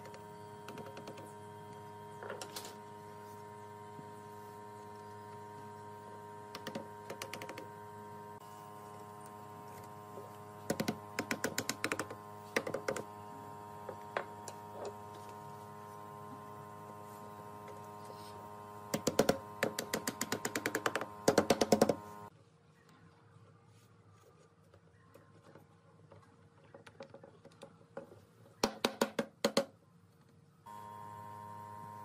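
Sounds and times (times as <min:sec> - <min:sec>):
steady hum: 0:00.0 - 0:22.3, 0:30.7 - 0:32.0.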